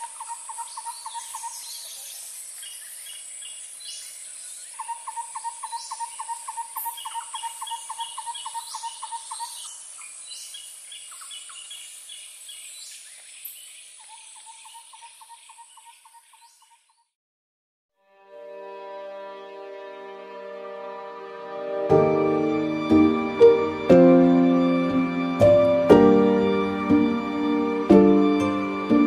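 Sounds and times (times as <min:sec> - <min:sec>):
bird chirping: 0:00.0 - 0:17.1.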